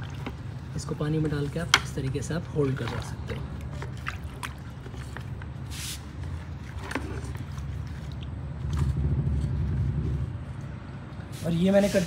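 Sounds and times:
water swishing in plastic bucket: 0.0s - 12.0s
low rumble: 7.5s - 11.2s.

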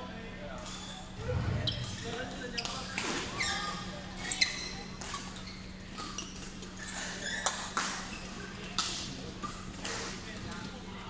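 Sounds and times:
shoe squeaks: 0.8s - 7.7s.

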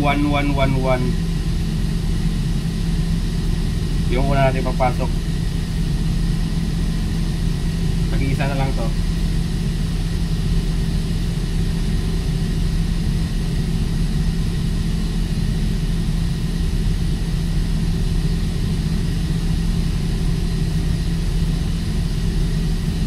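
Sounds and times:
heavy machinery droning: 3.6s - 6.0s, 7.8s - 9.3s.

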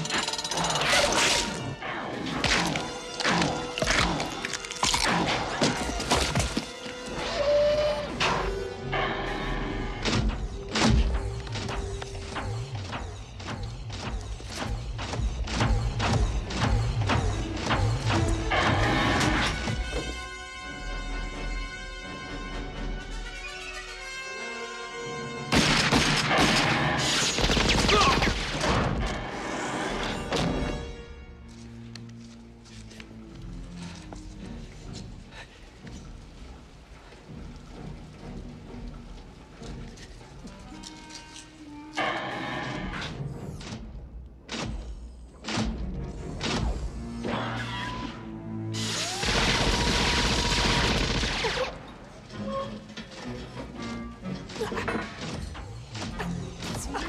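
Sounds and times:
orchestral film score: 0.0s - 57.0s
rapid gunfire: 25.6s - 28.6s, 49.2s - 51.8s.

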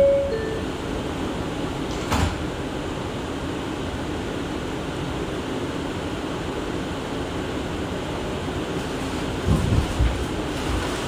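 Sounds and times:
door chime: 0.0s - 0.7s
air conditioning hum: 0.0s - 11.0s
sliding doors thumping shut: 1.9s - 2.4s, 9.3s - 11.0s.

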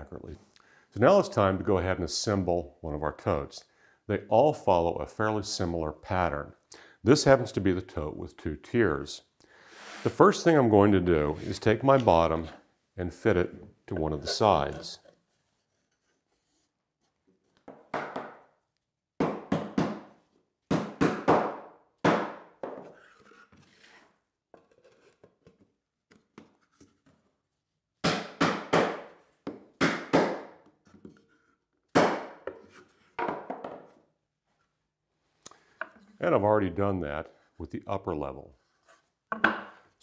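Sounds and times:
small handling noises: 11.1s - 12.7s, 13.3s - 17.8s, 22.9s - 27.6s
wooden parts knocking: 39.3s - 39.8s.

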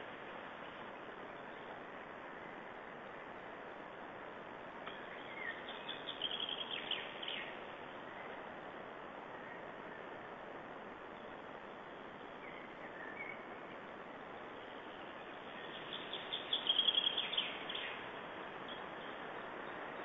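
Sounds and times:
steady background hiss: 0.0s - 20.0s
songbird trilling: 4.9s - 7.6s, 14.6s - 18.1s.

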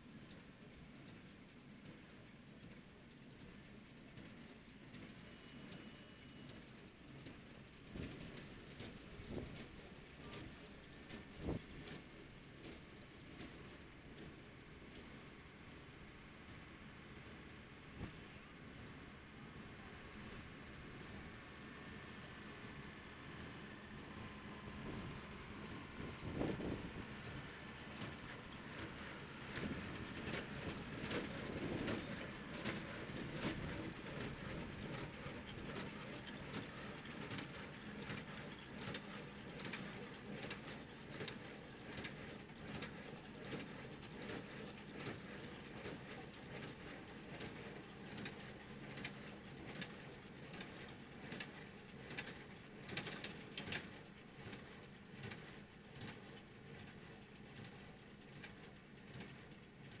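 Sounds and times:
tractor engine hum: 0.1s - 60.0s.

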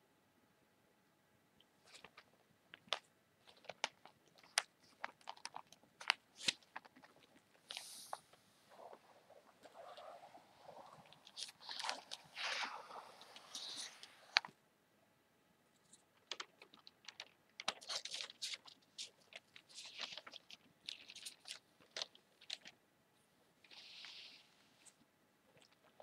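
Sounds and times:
newspaper rustling and crinkling: 2.8s - 14.5s, 16.4s - 22.7s.

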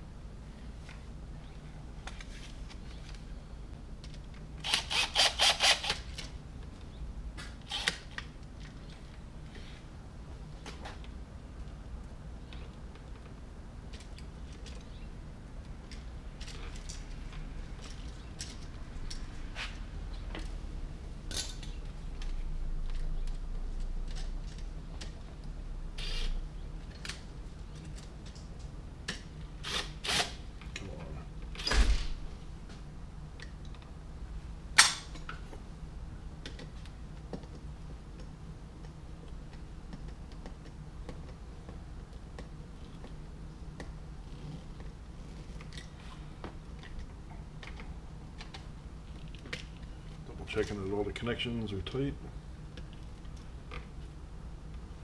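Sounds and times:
low steady hum: 0.0s - 55.0s
screwdriver clicks and scrapes: 7.7s - 8.2s.

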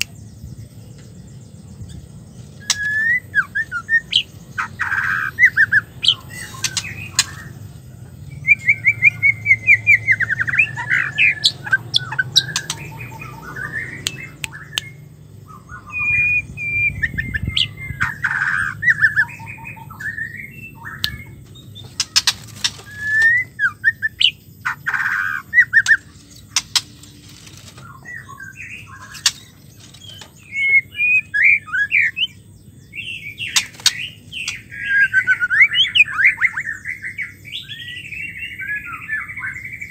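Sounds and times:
bird singing chirps and trills: 0.0s - 39.9s
sharp clicks: 29.1s - 30.4s.

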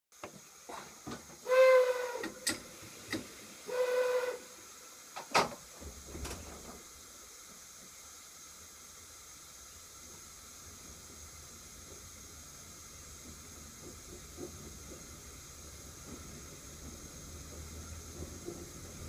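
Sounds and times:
train clicks and knocks: 0.2s - 3.5s, 5.1s - 8.0s, 9.8s - 19.0s
faint steady hiss: 0.2s - 19.0s
train horn blasts: 1.4s - 2.5s, 3.7s - 4.7s.

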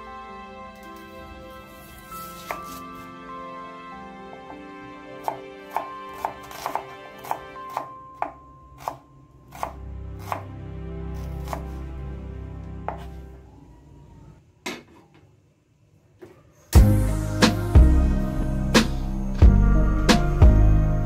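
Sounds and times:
knife slicing onion on board: 1.7s - 3.1s, 5.2s - 10.5s, 11.2s - 11.8s.

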